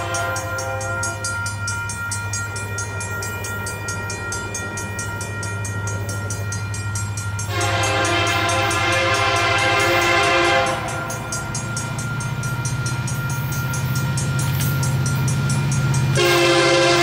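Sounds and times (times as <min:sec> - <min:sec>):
locomotive horn blast: 0:00.0 - 0:01.2, 0:07.5 - 0:11.2, 0:16.1 - 0:17.0.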